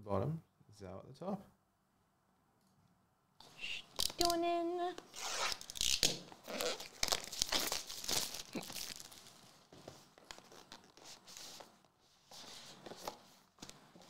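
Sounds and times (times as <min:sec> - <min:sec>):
plastic wrapping tearing and crinkling: 0:03.7 - 0:04.4, 0:05.1 - 0:09.6.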